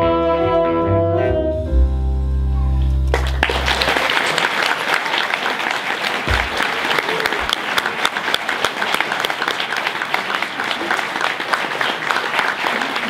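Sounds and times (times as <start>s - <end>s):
saxophone ensemble playing jazz: 0.0s - 4.1s
audience applause: 3.1s - 13.0s.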